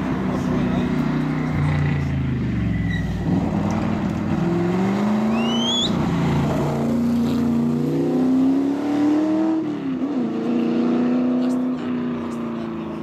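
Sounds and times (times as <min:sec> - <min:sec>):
short rising chirp: 0:05.3 - 0:06.0.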